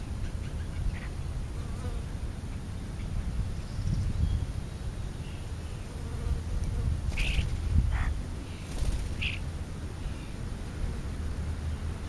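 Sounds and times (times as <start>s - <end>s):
low wavering buzzing rumble: 6.4s - 12.0s
high bird chirps: 8.6s - 9.4s.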